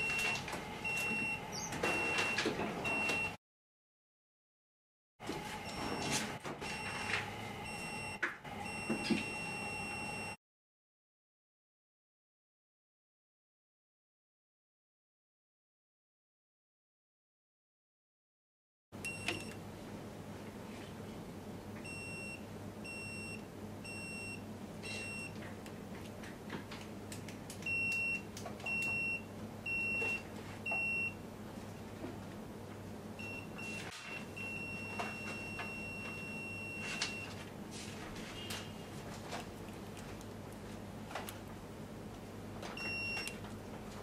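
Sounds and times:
voltage tester beeping: 0:42.8 - 0:43.4.

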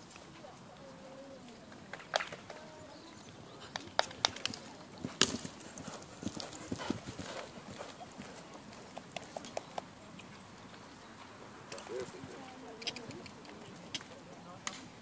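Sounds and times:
horse hoofbeats on sand: 0:03.6 - 0:09.9.

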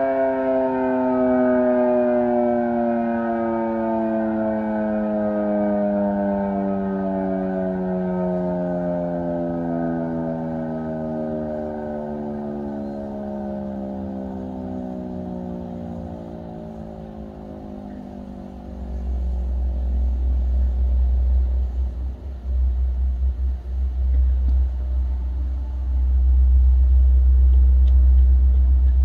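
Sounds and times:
warning siren winding down: 0:00.0 - 0:29.0
loud uneven low rumble: 0:06.9 - 0:29.0.

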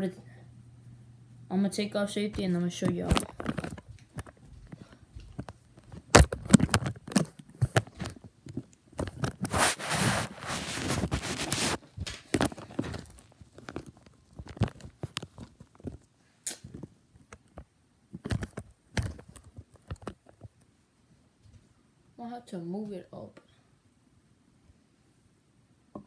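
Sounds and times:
rustling: 0:02.4 - 0:17.6.

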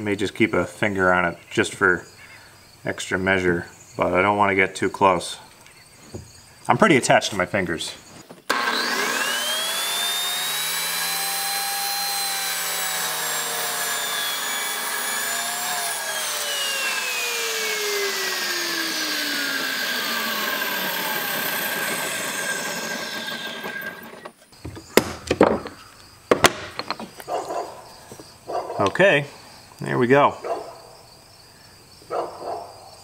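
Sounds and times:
saw winding down: 0:08.5 - 0:24.4
table saw motor whining: 0:08.5 - 0:25.7
sharp knocks: 0:24.6 - 0:27.2.

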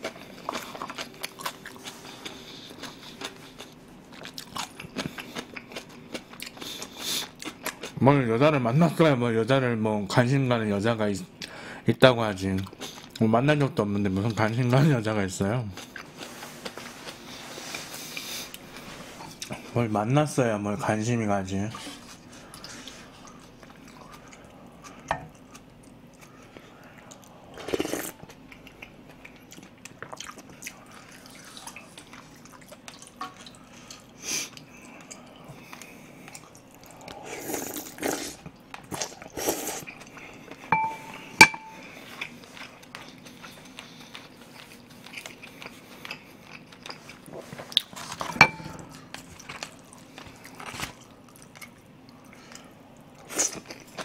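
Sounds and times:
chewing: 0:00.0 - 0:08.0, 0:15.7 - 0:19.7, 0:21.7 - 0:54.0
ladle stirring broth: 0:40.7 - 0:41.8
utensils clinking: 0:40.7 - 0:41.8, 0:48.2 - 0:48.9.

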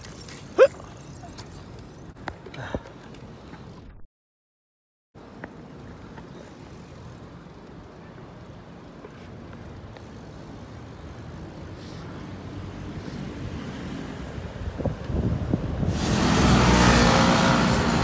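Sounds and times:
road noise: 0:00.0 - 0:04.0, 0:05.2 - 0:18.0
wind buffeting a microphone: 0:14.4 - 0:16.1.

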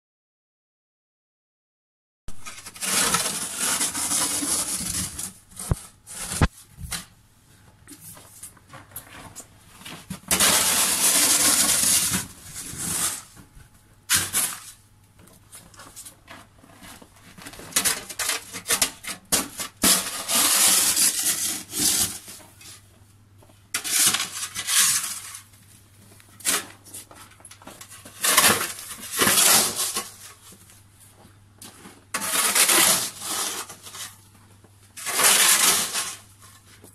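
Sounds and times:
snow shovel scraping snow: 0:02.4 - 0:06.5, 0:10.3 - 0:13.3, 0:19.8 - 0:22.3, 0:28.2 - 0:30.2, 0:32.2 - 0:34.1, 0:35.0 - 0:36.3.

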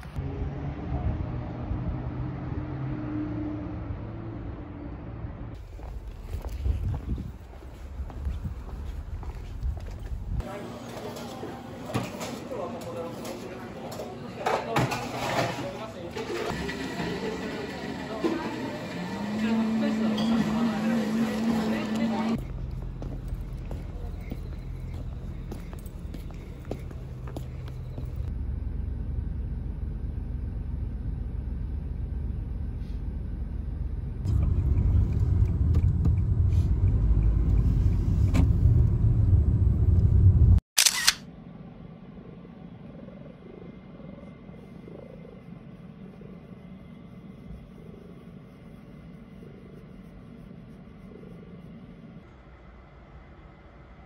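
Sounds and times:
car cabin engine rumble: 0:34.1 - 0:40.6
cat purring: 0:42.8 - 0:51.8.

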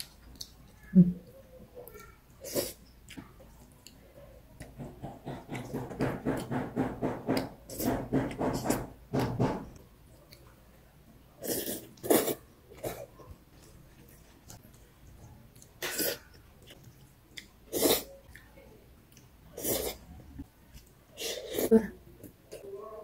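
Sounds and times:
person slurping noodles: 0:11.4 - 0:13.0, 0:17.7 - 0:18.1, 0:19.6 - 0:20.1.

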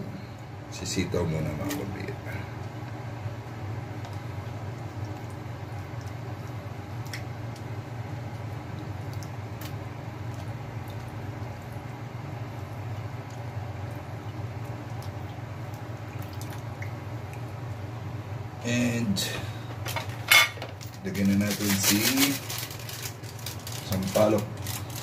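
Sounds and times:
broth simmering: 0:00.0 - 0:19.8.

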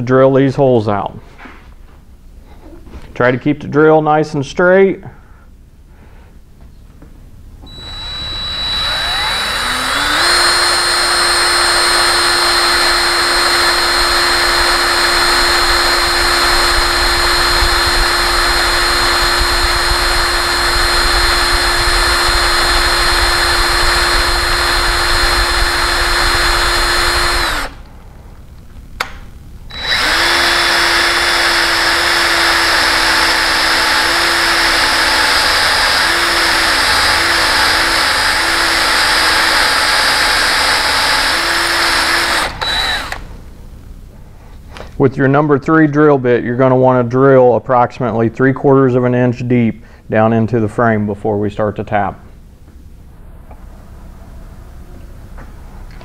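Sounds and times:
electric drill drilling metal: 0:07.7 - 0:27.8, 0:29.7 - 0:43.3.

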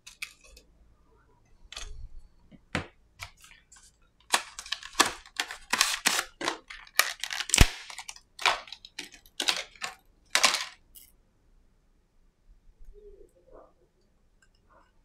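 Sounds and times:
packaging rustling and crinkling: 0:03.3 - 0:10.8.

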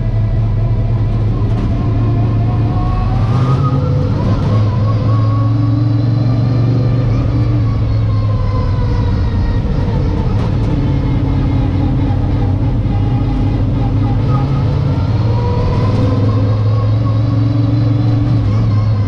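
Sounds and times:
race car engine running: 0:00.0 - 0:19.0.

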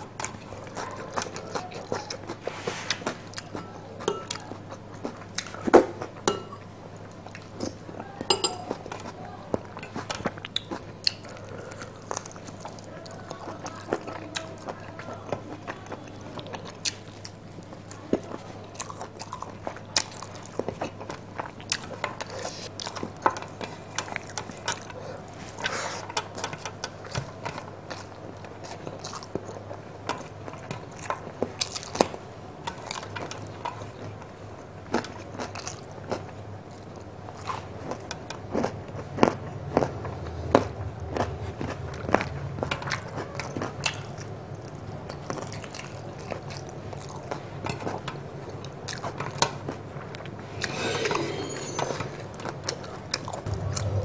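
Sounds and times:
faint steady hum: 0:00.0 - 0:54.0
person chewing with mouth clicks: 0:09.8 - 0:27.2.

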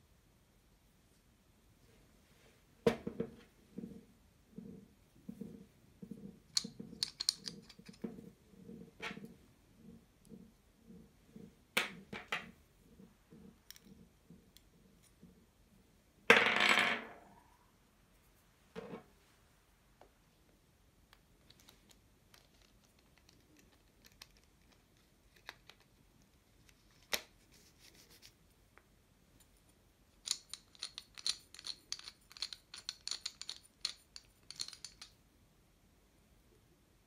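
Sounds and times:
metal parts clicking and scraping: 0:06.5 - 0:08.1, 0:21.4 - 0:26.0, 0:29.4 - 0:35.2.

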